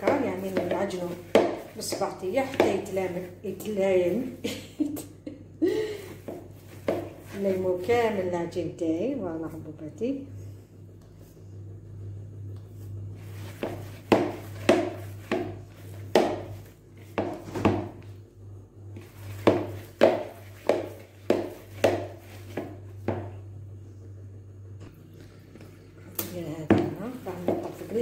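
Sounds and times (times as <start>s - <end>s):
dough slapping in bowl: 0.0s - 4.4s, 6.2s - 8.2s, 13.2s - 18.1s, 19.0s - 23.4s, 26.2s - 28.0s.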